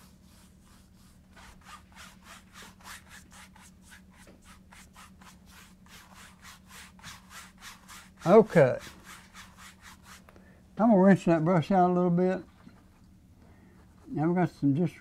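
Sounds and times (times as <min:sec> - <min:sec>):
paintbrush scratching on canvas: 0:00.0 - 0:10.2
faint steady hum: 0:00.0 - 0:15.0.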